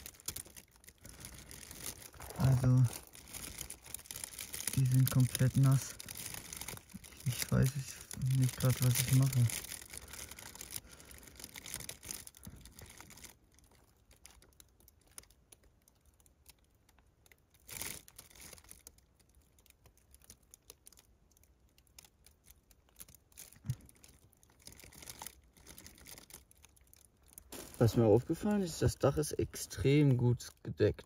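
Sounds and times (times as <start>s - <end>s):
plastic tarp crinkling: 0.0s - 16.6s, 17.2s - 29.8s
small ticks: 3.0s - 27.6s.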